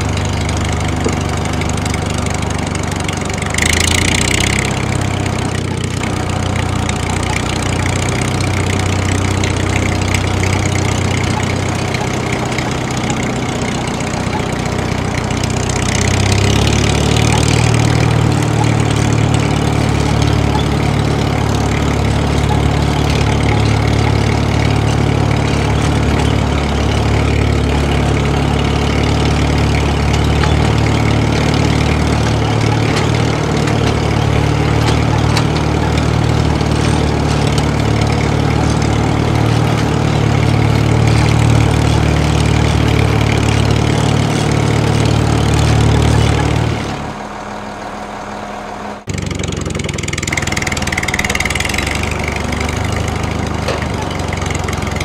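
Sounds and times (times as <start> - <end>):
different engine sound: 0.0 - 55.0
tractor engine running: 0.0 - 55.0.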